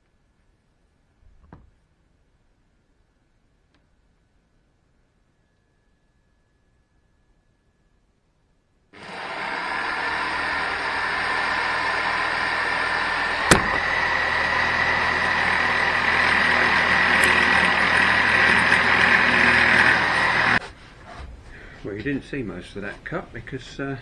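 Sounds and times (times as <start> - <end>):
jigsaw cutting plastic: 9.0 - 20.6
sharp knock: 13.5 - 13.8.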